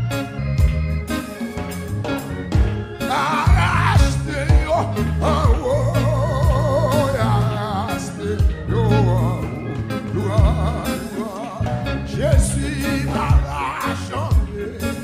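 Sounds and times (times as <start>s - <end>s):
band playing: 0.0s - 15.0s
bass line: 0.0s - 15.0s
drum beats: 0.0s - 15.0s
man singing into microphone: 3.0s - 15.0s.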